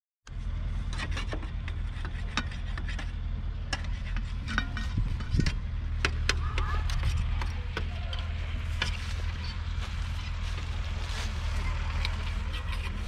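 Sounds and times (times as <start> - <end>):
low rumble: 0.3 - 13.0
footsteps through dry straw: 6.4 - 13.0.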